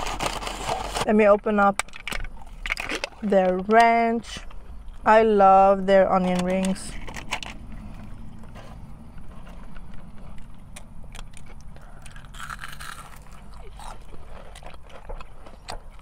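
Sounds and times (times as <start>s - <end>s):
low steady rumble: 0.0s - 16.0s
chewing: 7.8s - 16.0s
onion ring crunch: 10.6s - 16.0s.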